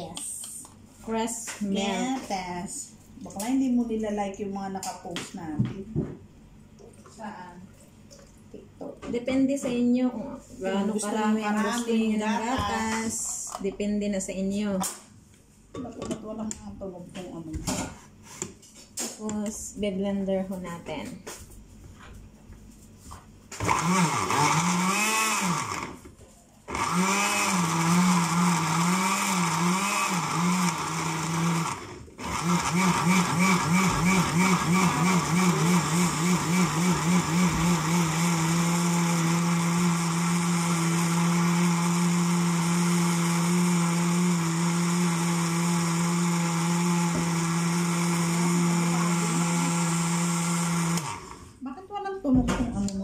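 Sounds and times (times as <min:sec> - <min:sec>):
blender motor running: 0:23.6 - 0:26.1, 0:26.7 - 0:51.6.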